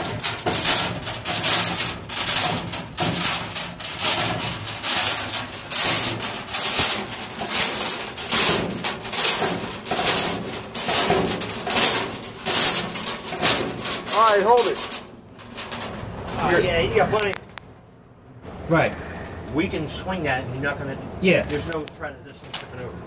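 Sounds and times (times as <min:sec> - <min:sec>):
steel chain rattling and clinking: 0:00.0 - 0:17.0.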